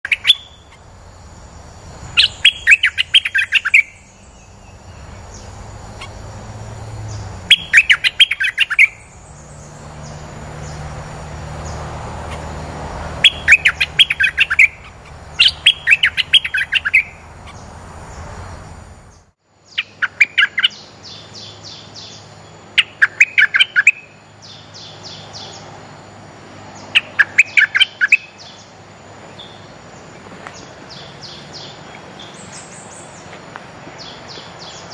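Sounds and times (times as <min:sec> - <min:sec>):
bulbul chirping calls: 0:00.0 - 0:01.0, 0:02.1 - 0:06.3, 0:07.1 - 0:10.8, 0:13.2 - 0:17.7, 0:22.8 - 0:24.9, 0:27.0 - 0:28.6.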